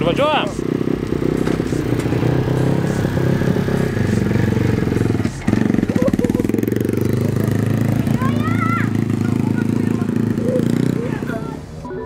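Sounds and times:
pit bike engine idling and revving: 0.0s - 12.0s.

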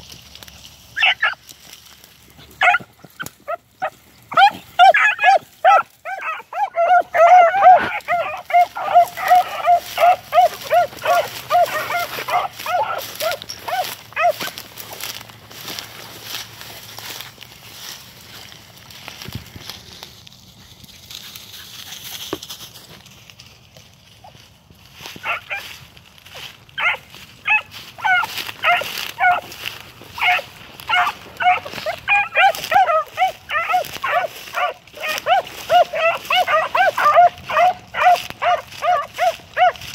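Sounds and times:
dogs barking: 1.0s - 1.4s, 2.4s - 16.2s, 25.2s - 25.8s, 26.4s - 39.9s
hounds baying: 1.0s - 1.5s, 2.4s - 17.3s, 25.1s - 39.9s.

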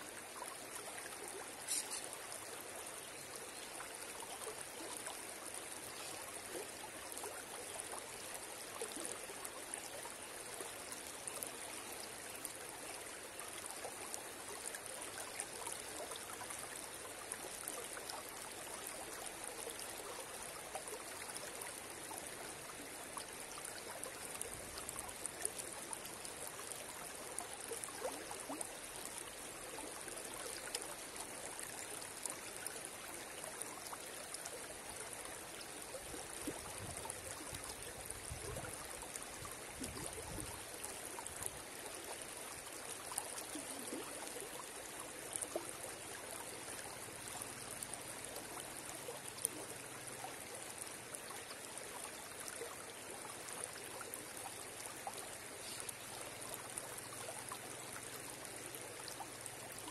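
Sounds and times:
small water splashes: 0.1s - 59.9s.

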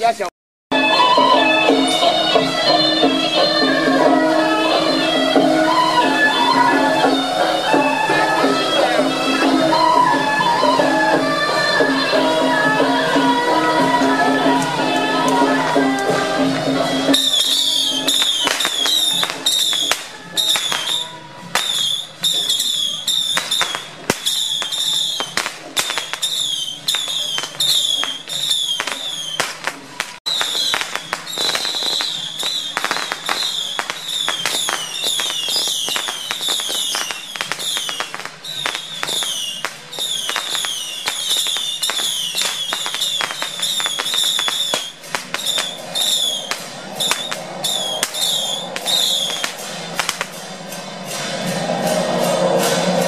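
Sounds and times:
firecrackers crackling: 0.0s - 53.0s
falling whistles: 17.0s - 29.7s, 30.3s - 53.0s.

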